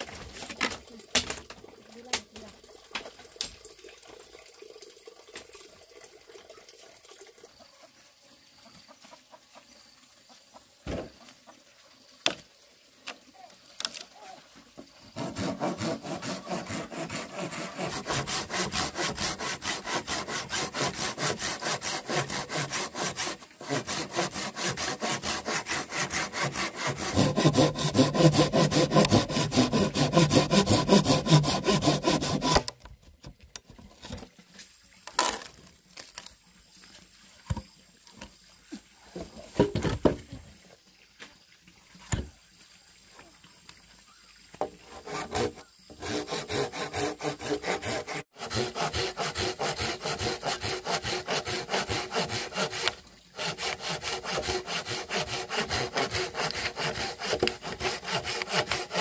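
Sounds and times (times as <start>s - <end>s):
handsaw cutting wood: 15.0s - 32.7s, 44.8s - 59.0s.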